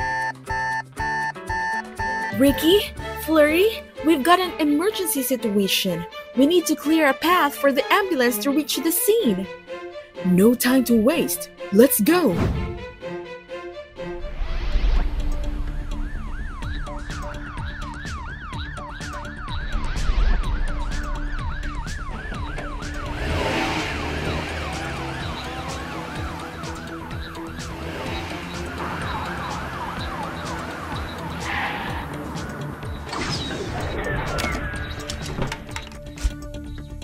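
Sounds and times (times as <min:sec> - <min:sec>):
emergency siren yelping: 0:00.0 - 0:02.5, 0:15.7 - 0:33.1
background music: 0:00.0 - 0:37.0.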